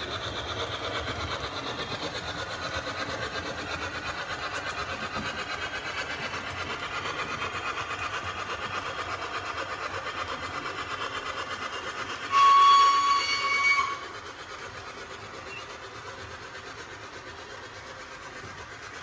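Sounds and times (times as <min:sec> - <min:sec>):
model locomotive chuffing: 0:00.0 - 0:19.0
loud whistle blast: 0:12.3 - 0:14.0.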